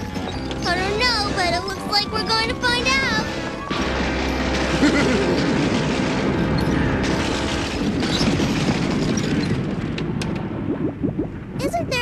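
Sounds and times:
cartoon thunder rumbling: 0.7 - 12.0.

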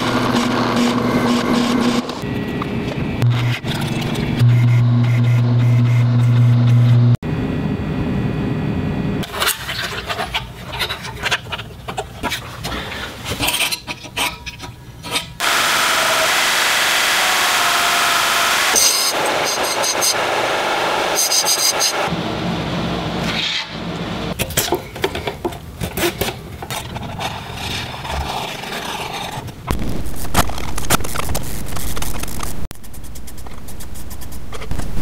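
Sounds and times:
bench grinder grinding metal: 0.0 - 2.3, 15.4 - 22.1.

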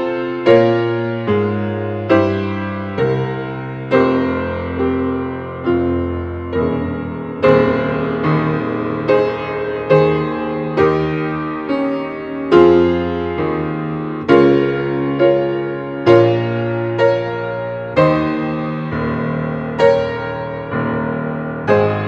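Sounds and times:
slow piano chords: 0.0 - 22.0.

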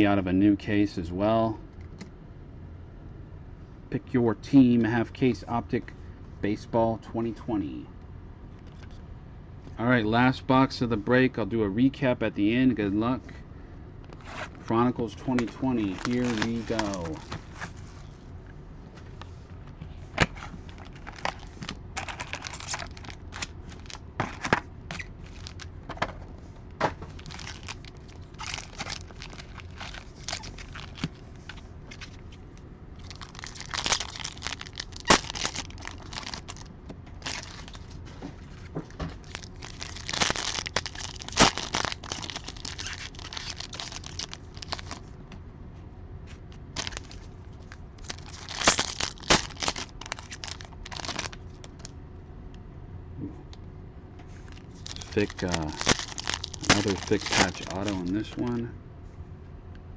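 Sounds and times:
foil wrappers crackling: 15.4 - 17.7, 20.2 - 25.7, 27.1 - 32.2, 33.0 - 45.1, 46.6 - 51.9, 54.4 - 58.4
wrapper tearing: 15.8 - 17.6, 20.7 - 25.7, 27.1 - 32.2, 33.0 - 38.0, 39.2 - 45.0, 46.6 - 47.3, 48.0 - 51.9, 54.5 - 58.3.

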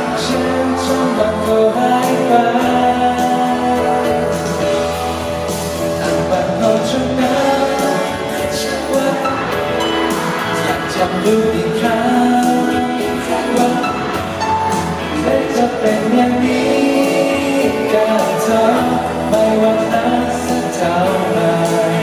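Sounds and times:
keyboard piano: 0.0 - 22.0
man singing into microphone: 0.0 - 22.0.

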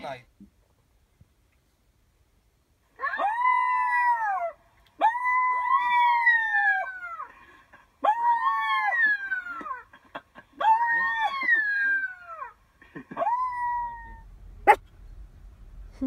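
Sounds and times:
dog howling: 3.0 - 7.2, 13.2 - 14.8.

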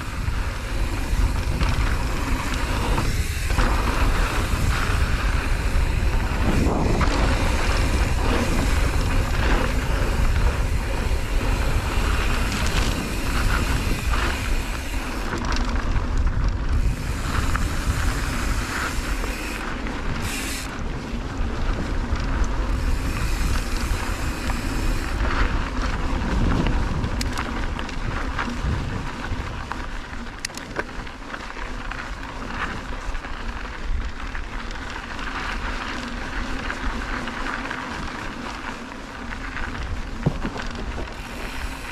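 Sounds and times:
wind buffeting microphone: 0.0 - 31.2
bike clicks and rattles: 0.0 - 41.9
tyre noise on dirt: 0.0 - 41.9.

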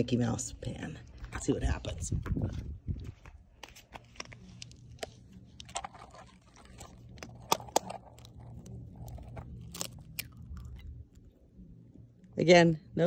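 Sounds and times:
eggshell cracking: 5.6 - 11.4.

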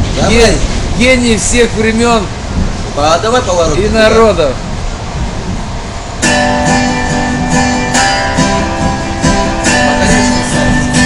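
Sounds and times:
strummed acoustic guitar: 6.2 - 11.0.

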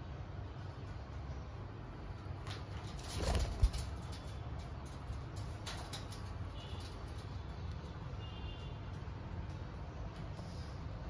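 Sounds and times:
parakeets scratching on wire mesh: 2.3 - 10.9.

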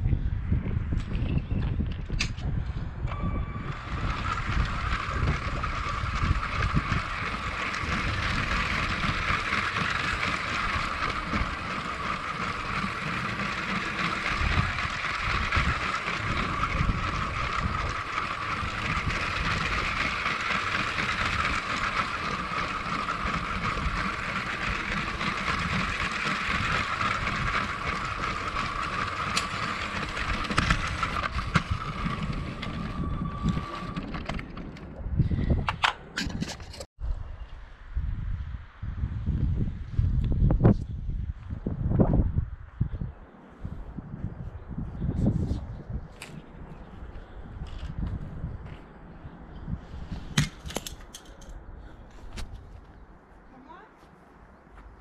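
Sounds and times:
toy train motor whine: 3.1 - 34.8.

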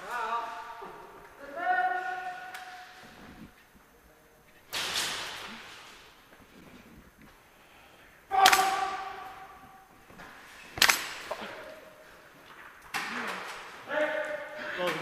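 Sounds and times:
sharp bangs echoing in a hall: 1.5 - 3.2, 4.7 - 6.3, 8.2 - 12.2.

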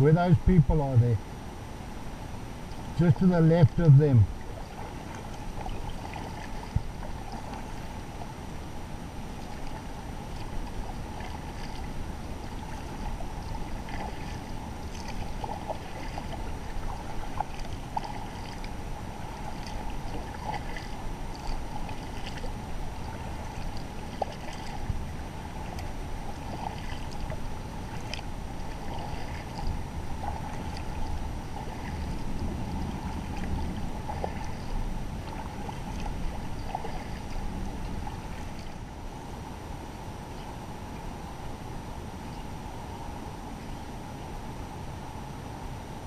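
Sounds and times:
rush of water and air: 0.0 - 46.0
paddle splashing in water: 2.6 - 39.1.

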